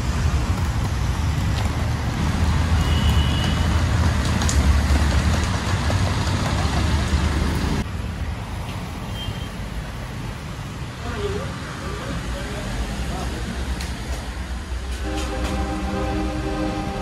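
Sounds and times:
heavy rain: 0:00.0 - 0:07.8, 0:14.4 - 0:17.0
street traffic: 0:00.0 - 0:17.0.

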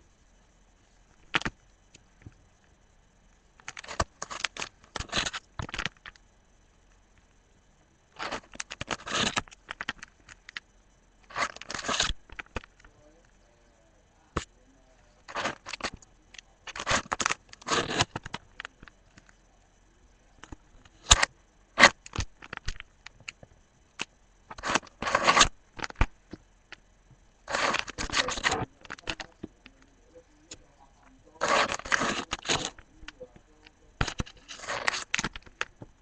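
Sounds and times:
plastic pages rustling: 0:11.3 - 0:12.7, 0:15.3 - 0:16.0, 0:27.5 - 0:29.4, 0:31.4 - 0:32.9, 0:34.0 - 0:35.7.

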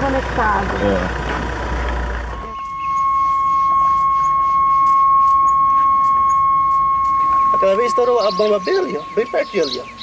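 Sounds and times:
loud steady high tone: 0:02.1 - 0:10.0.

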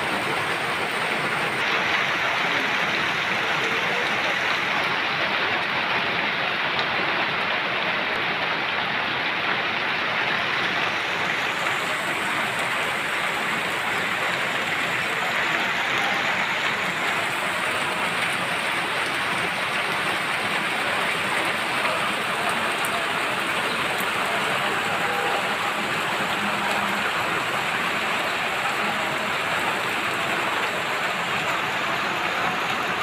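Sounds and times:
rain on wet ground and plants: 0:00.0 - 0:33.0.

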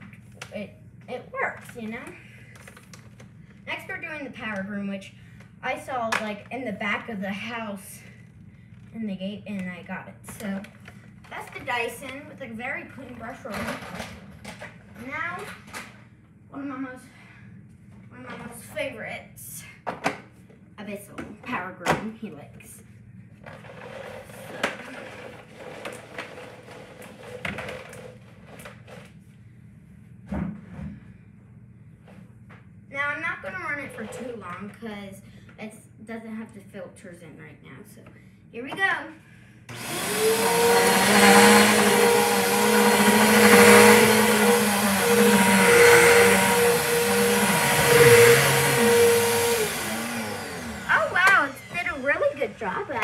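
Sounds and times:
vacuum cleaner motor hum and whine: 0:39.7 - 0:53.0.

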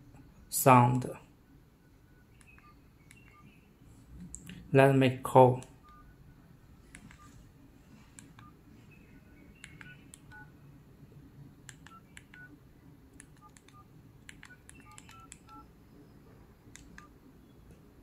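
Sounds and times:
keypad clicks and dial beeps: 0:02.2 - 0:03.6, 0:05.7 - 0:06.1, 0:06.9 - 0:07.4, 0:08.2 - 0:10.5, 0:11.7 - 0:12.5, 0:13.2 - 0:15.7, 0:16.7 - 0:17.2.

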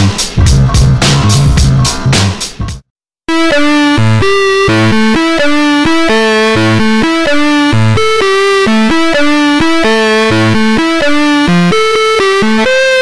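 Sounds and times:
synthesizer melody: 0:03.3 - 0:13.0.

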